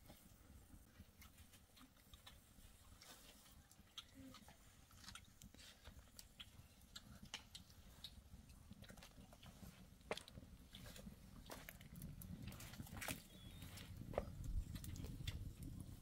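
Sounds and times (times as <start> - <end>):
wood fire crackling: 5.0 - 16.0.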